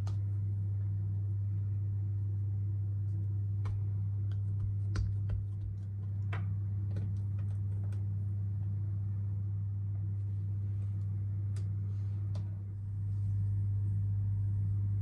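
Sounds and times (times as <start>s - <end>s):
steady low hum: 0.0s - 15.0s
clicks and taps of dough shaping: 3.1s - 8.1s.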